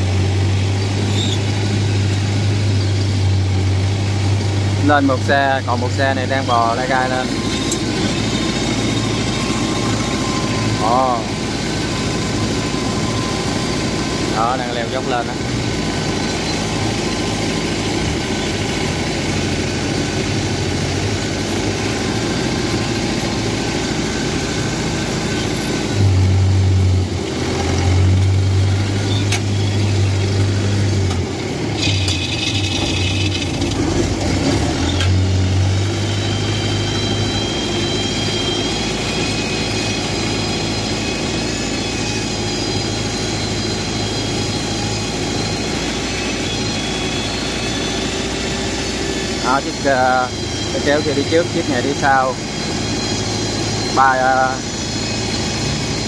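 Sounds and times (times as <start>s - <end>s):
tractor engine droning: 0.0s - 56.0s.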